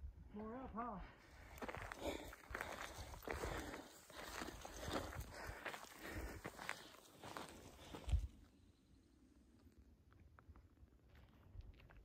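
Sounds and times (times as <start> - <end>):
footsteps on gravel trail: 1.2 - 8.5, 10.4 - 12.0.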